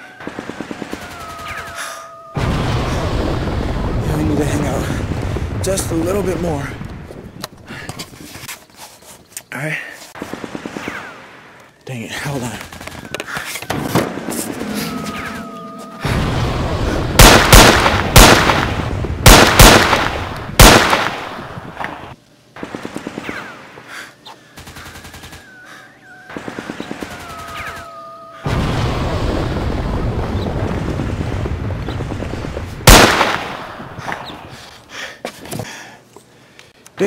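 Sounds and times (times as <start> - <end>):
steady background noise: 3.0 - 28.5
single gunshots: 16.0 - 21.5, 32.8 - 33.8
rapid gunfire bursts: 17.1 - 21.4, 24.6 - 25.5, 26.3 - 27.7.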